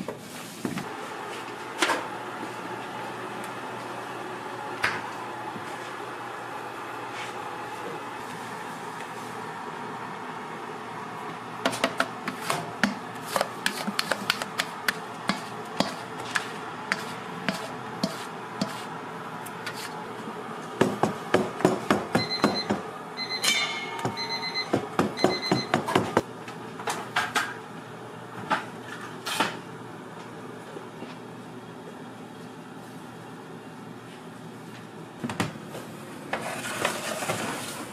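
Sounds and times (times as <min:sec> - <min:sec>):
kitchen hum: 0:00.0 - 0:37.9
short electronic beeps: 0:24.2 - 0:25.7.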